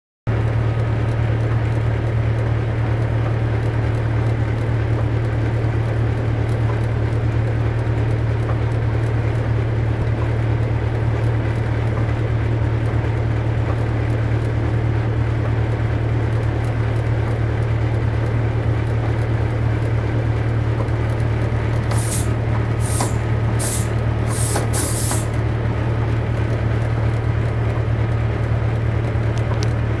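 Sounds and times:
diesel locomotive engine droning: 0.3 - 30.0
short sharp hisses: 21.9 - 25.3.

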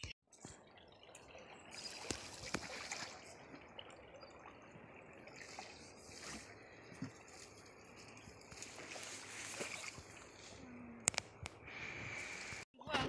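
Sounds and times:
river water lapping around boat: 0.5 - 10.7.

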